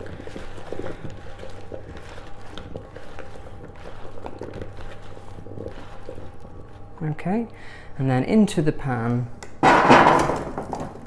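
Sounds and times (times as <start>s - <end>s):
soft squelching: 0.0s - 8.1s.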